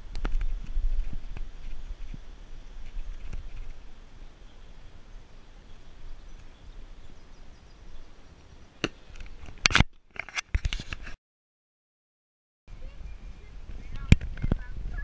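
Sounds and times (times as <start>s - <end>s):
wind rumble on microphone: 0.0s - 9.8s, 12.7s - 15.0s.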